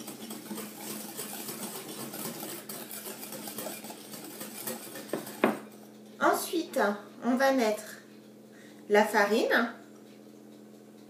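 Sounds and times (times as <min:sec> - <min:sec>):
whisk beating in glass bowl: 0:00.0 - 0:05.8.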